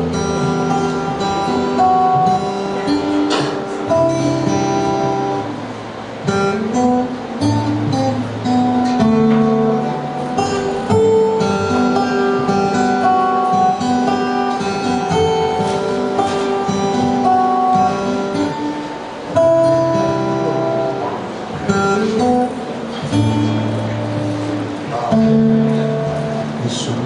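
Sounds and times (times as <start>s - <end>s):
acoustic guitar playing: 0.0s - 27.0s.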